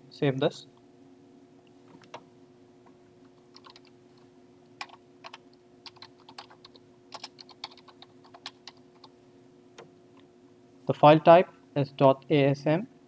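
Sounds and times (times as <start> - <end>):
faint steady hum: 0.0 - 13.0
typing on computer keyboard: 3.5 - 3.9, 4.8 - 9.1.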